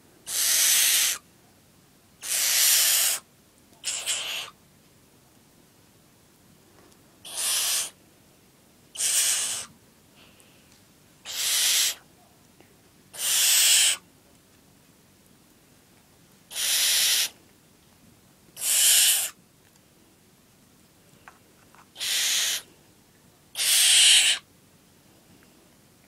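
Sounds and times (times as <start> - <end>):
owl chick hiss-screeches: 0.2 - 1.2, 2.2 - 4.6, 7.2 - 8.0, 8.9 - 9.7, 11.2 - 12.1, 13.1 - 14.0, 16.5 - 17.4, 18.6 - 19.4, 21.9 - 22.7, 23.6 - 24.5.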